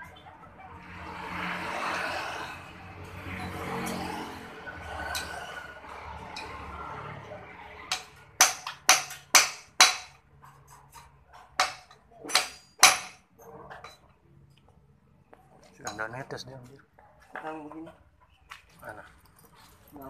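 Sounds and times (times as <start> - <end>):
hammer clanging on metal: 7.9 - 13.2.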